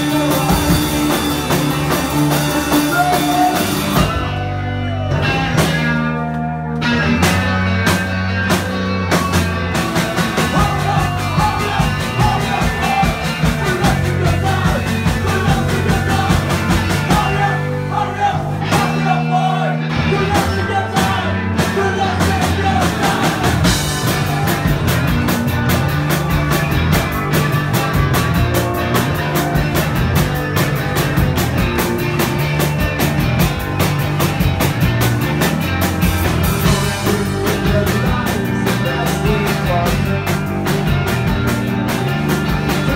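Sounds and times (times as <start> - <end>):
bass guitar: 0.0 - 42.9
distorted electric guitar: 0.0 - 42.9
drum kit: 0.0 - 42.9
person singing: 2.7 - 7.2, 10.4 - 23.7, 36.6 - 41.0.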